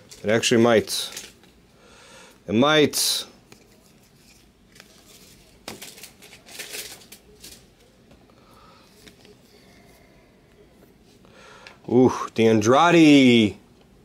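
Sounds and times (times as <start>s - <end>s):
cards rustling and sliding: 3.5s - 7.6s.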